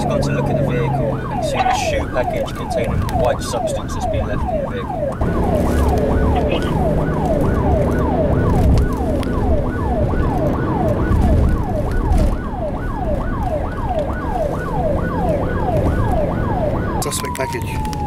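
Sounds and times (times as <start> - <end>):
car cabin hum while moving: 0.0 - 12.5
police siren fast yelp: 0.0 - 18.0.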